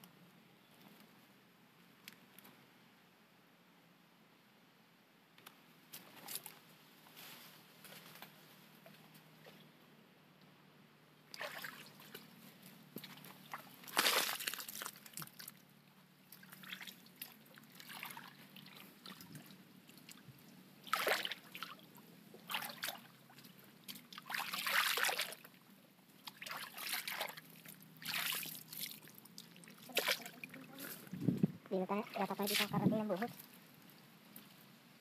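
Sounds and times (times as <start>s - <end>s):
water splashing and sloshing: 11.3s - 12.4s, 13.0s - 15.6s, 16.2s - 25.6s, 26.2s - 31.1s, 31.8s - 33.6s.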